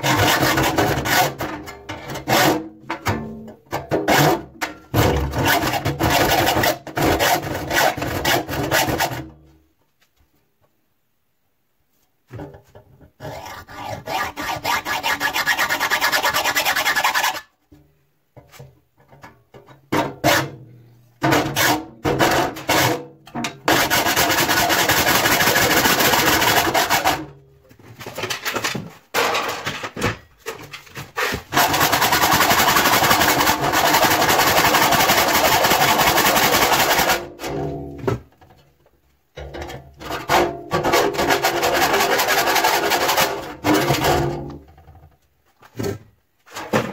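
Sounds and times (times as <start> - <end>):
hacksaw cutting sheet metal: 0.0 - 2.8, 3.8 - 9.3, 13.2 - 17.5, 20.0 - 20.6, 21.2 - 27.3, 31.2 - 38.0, 40.0 - 44.6.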